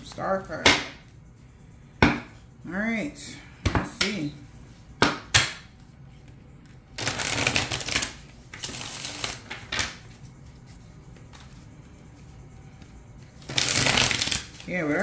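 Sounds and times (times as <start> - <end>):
cards being shuffled: 5.7 - 15.0.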